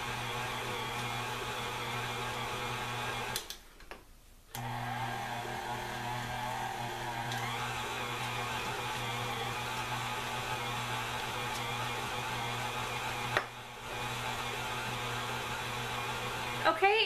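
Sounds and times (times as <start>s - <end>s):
stand mixer motor running: 0.0s - 3.4s, 4.6s - 16.6s
mixer click: 7.2s - 7.6s.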